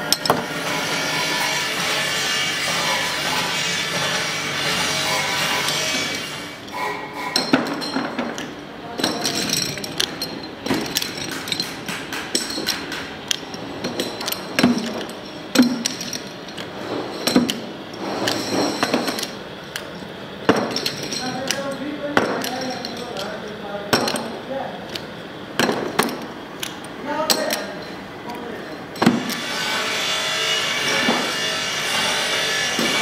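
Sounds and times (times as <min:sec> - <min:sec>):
metal knocks and clinks: 0:05.1 - 0:28.1.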